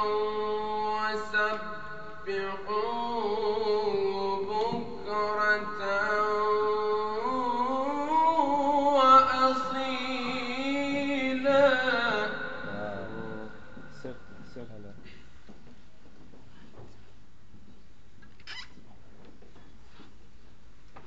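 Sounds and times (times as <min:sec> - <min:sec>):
man chanting melodic recitation: 0:00.0 - 0:15.0.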